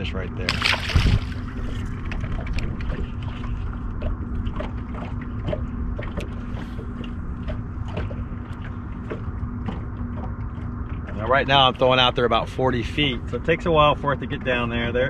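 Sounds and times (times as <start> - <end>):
steady low hum: 0.0 - 15.0
waves lapping against boat hull: 0.0 - 15.0
wind noise: 0.5 - 3.4.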